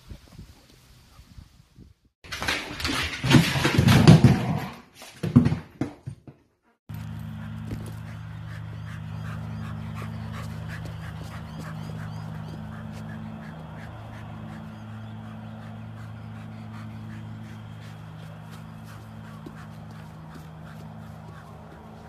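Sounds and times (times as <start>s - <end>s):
steady low hum: 6.9s - 22.0s
dog panting: 7.0s - 22.0s.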